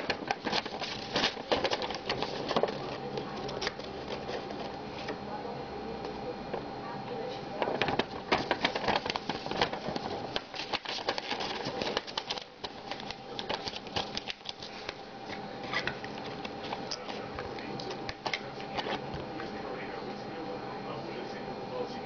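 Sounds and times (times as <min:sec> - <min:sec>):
paper and cardboard crinkling: 0:00.0 - 0:05.1, 0:07.6 - 0:19.0.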